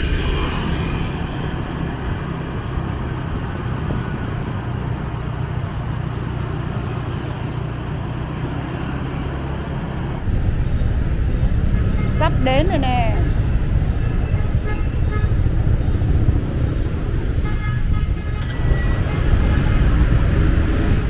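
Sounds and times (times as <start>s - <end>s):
road noise: 0.0s - 21.0s
vehicle engine hum: 0.0s - 21.0s.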